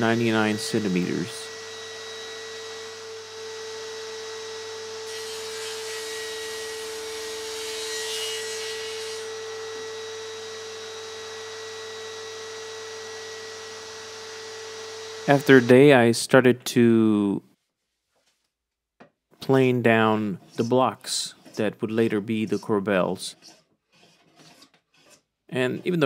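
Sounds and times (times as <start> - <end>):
saw cutting wood: 0.0 - 10.3, 13.8 - 16.0, 19.5 - 26.0
table saw whining: 0.0 - 16.0.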